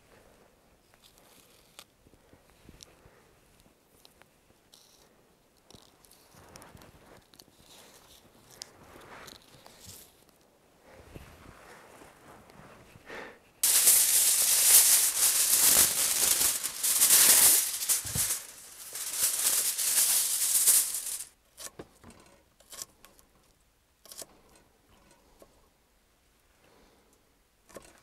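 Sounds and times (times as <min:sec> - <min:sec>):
loud dense rustle: 0:13.6 - 0:21.3.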